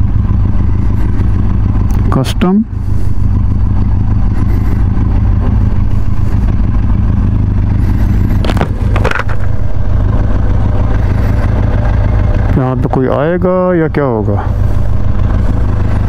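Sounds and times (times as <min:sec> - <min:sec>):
motorcycle engine running: 0:00.0 - 0:16.0
sharp clatters: 0:07.7 - 0:12.5.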